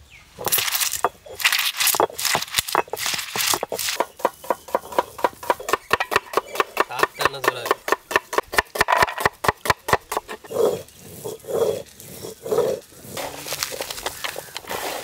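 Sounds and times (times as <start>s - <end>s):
onions crackling in a pot: 0.4s - 7.2s, 12.8s - 15.0s
stone roller grinding on stone slab: 0.4s - 15.0s.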